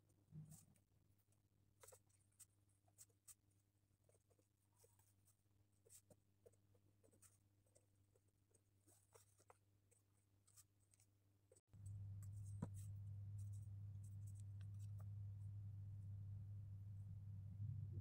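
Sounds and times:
steady low hum: 11.5 - 18.0
pen scratching on paper: 11.8 - 15.1.

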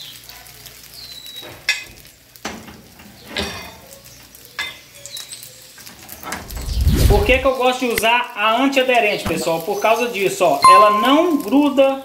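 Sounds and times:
egg sizzling in frying pan: 0.0 - 8.4.

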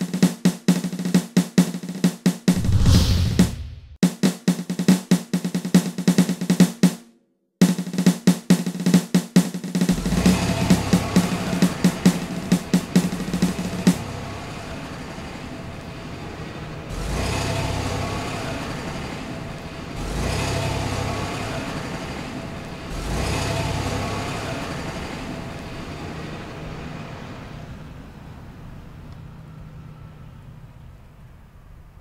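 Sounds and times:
car engine surging: 9.9 - 30.8.

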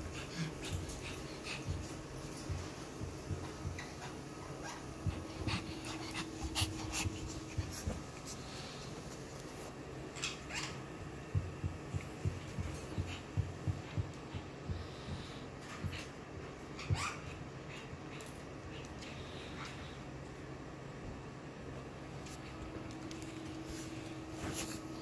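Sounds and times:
dogs moving on a sofa: 0.0 - 14.7, 22.2 - 25.0
soft dog sounds: 0.0 - 20.3.

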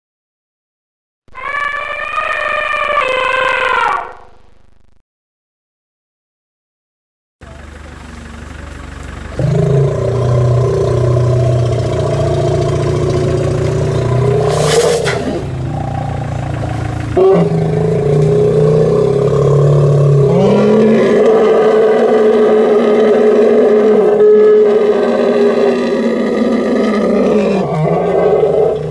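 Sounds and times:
vehicle engine revving: 7.4 - 28.9.

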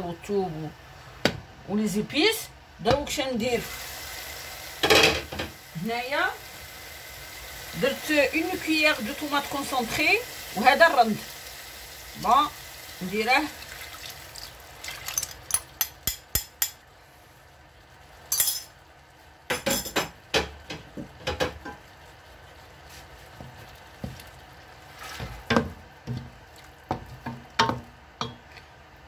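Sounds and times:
wooden spoon knocking a pot: 25.2 - 26.3, 26.9 - 28.5.

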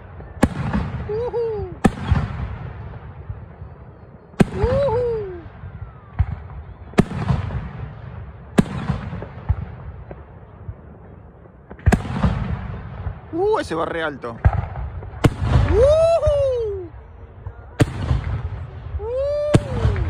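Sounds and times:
fainter firework pops and crackle: 1.8 - 15.9.

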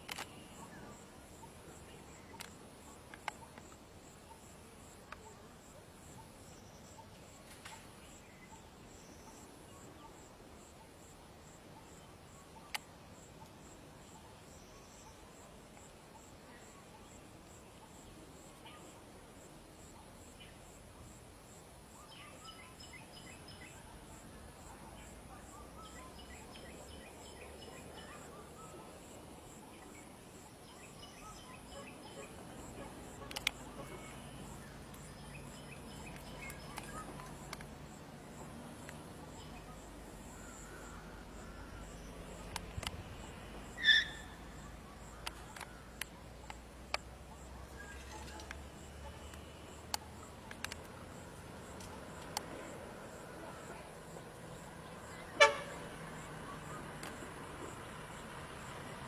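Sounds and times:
sharp clicks: 0.0 - 0.4, 33.2 - 33.7, 42.4 - 43.1, 49.3 - 51.0
insects trilling: 0.0 - 59.0.

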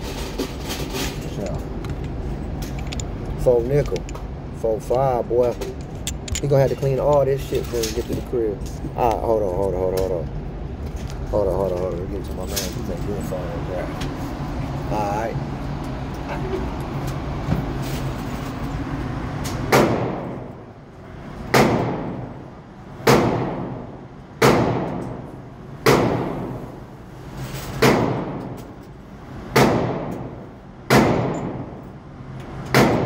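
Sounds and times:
shuffling and handling noise: 0.0 - 4.1, 4.8 - 14.4, 17.6 - 18.8.

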